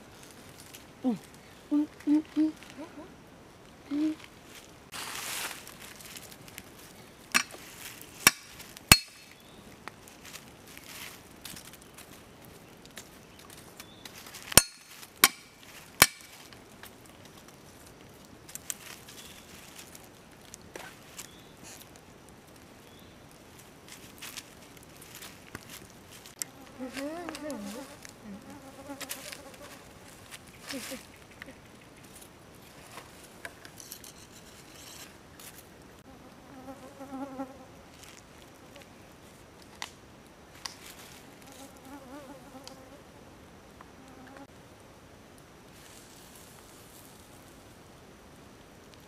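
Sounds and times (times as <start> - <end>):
dry leaves rustling: 0.0 - 1.8, 2.4 - 36.1, 37.9 - 39.8, 40.5 - 41.9, 45.6 - 47.9
background hiss: 0.0 - 49.0
flying insect buzzing: 26.4 - 31.0.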